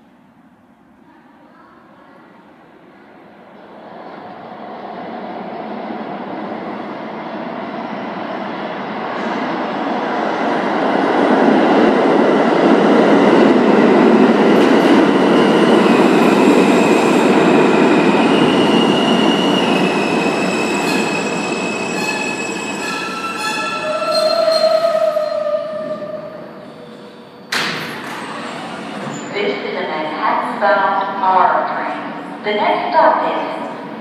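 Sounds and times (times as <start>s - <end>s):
subway train rumble: 0.0s - 34.0s
wheels and brakes squealing: 18.2s - 27.6s.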